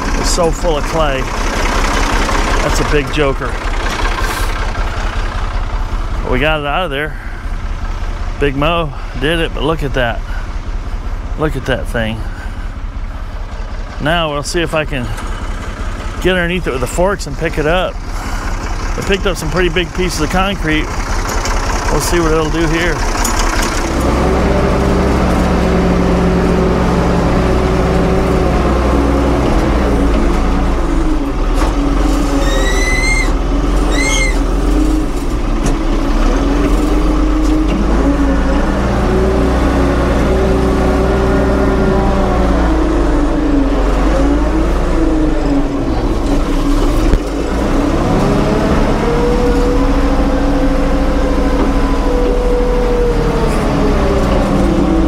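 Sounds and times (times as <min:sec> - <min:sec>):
diesel engine running hard: 0:00.0 - 0:55.0
short rising squeaks: 0:32.0 - 0:35.0.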